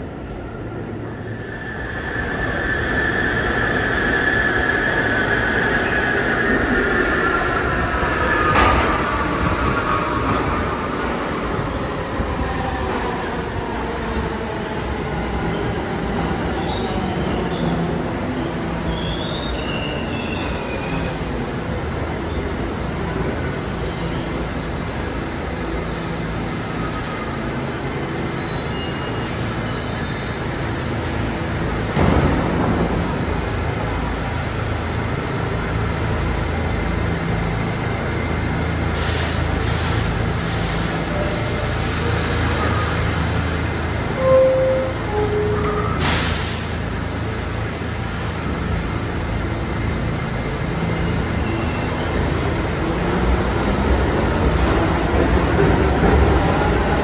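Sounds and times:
subway train motors humming: 0:00.0 - 0:57.0
high wheel squeals: 0:18.4 - 0:21.2, 0:28.1 - 0:30.8.

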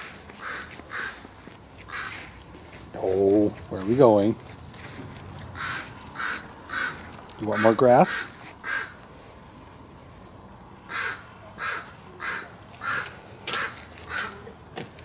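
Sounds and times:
crow cawing: 0:00.4 - 0:02.3, 0:05.6 - 0:09.0, 0:10.9 - 0:14.5.

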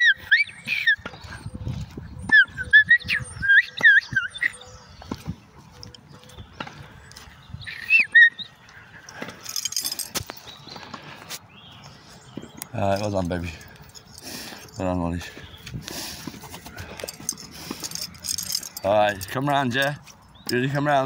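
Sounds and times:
person whistling commands: 0:00.0 - 0:01.0, 0:02.3 - 0:04.6.

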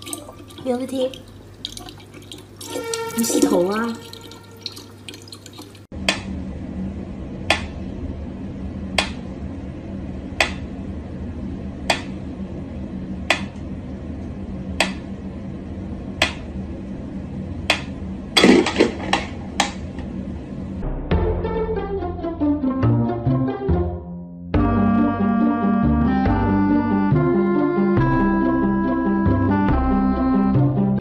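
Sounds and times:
tap water running: 0:00.0 - 0:05.9
steady low hum: 0:05.8 - 0:21.3.

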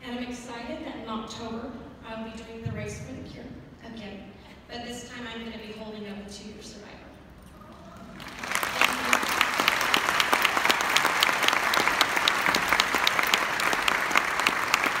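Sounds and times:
audience applauding: 0:08.0 - 0:15.0.

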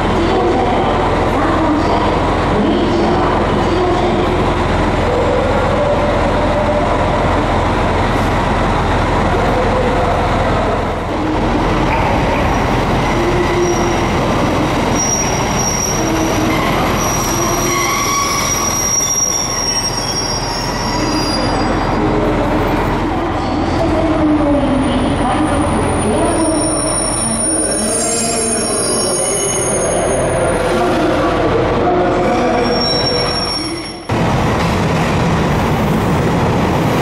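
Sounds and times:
diesel train idling at platform: 0:00.0 - 0:37.0
train wheels squealing: 0:14.9 - 0:21.8, 0:26.4 - 0:30.4, 0:32.5 - 0:34.1.

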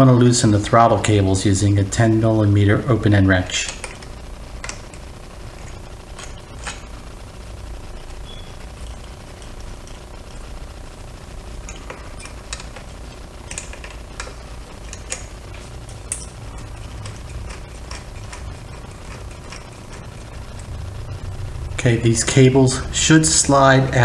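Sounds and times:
low steady background hum: 0:00.0 - 0:24.0
wrench metallic clicks: 0:11.6 - 0:20.7.

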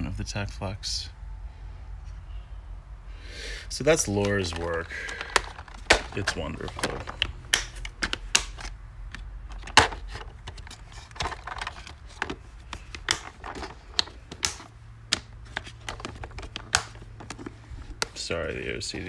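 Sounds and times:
plastic boxes clicking and knocking: 0:03.9 - 0:18.3.

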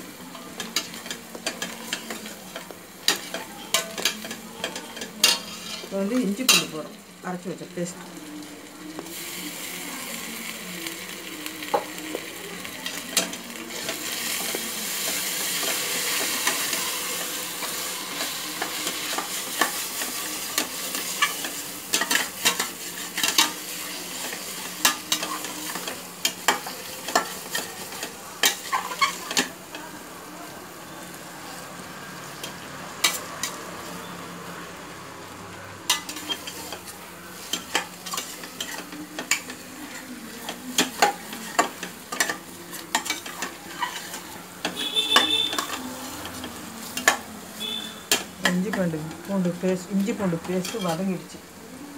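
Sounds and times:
paste sizzling in hot oil: 0:00.0 - 0:34.8, 0:35.8 - 0:51.9
spatula scraping a steel pot: 0:05.0 - 0:05.9, 0:42.9 - 0:47.2.

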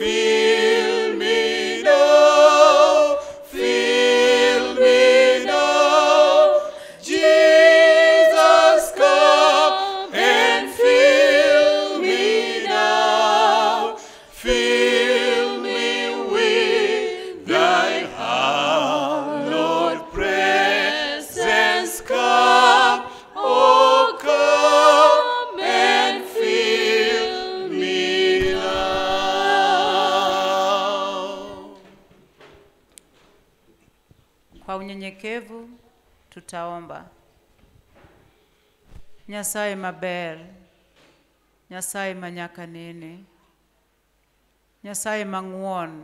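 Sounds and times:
group singing a hymn a cappella: 0:00.0 - 0:32.2.

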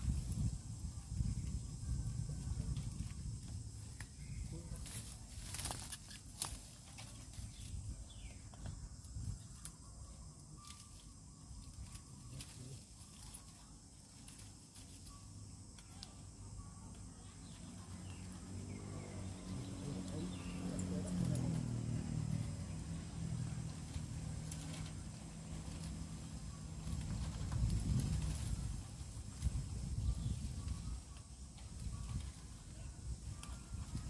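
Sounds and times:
bamboo stems rustling and cracking: 0:00.0 - 0:34.0
bamboo snapping: 0:03.9 - 0:07.2, 0:09.5 - 0:09.8.

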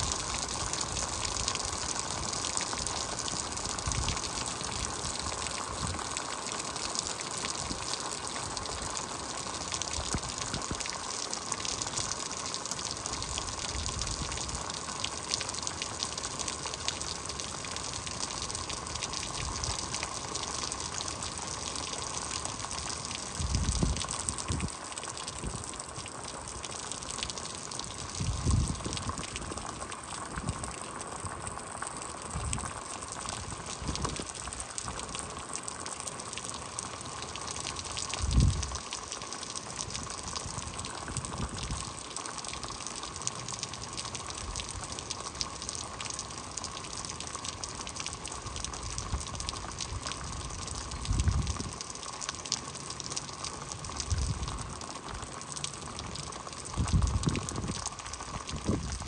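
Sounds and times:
heavy rain falling: 0:00.0 - 0:59.0
wind buffeting microphone: 0:23.4 - 0:24.7, 0:28.2 - 0:29.4, 0:38.2 - 0:38.8, 0:51.0 - 0:51.7, 0:56.8 - 0:57.8, 0:58.5 - 0:59.0.

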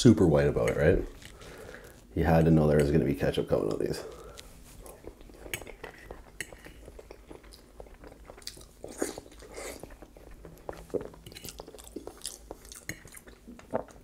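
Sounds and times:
close-up chewing: 0:03.7 - 0:14.0.

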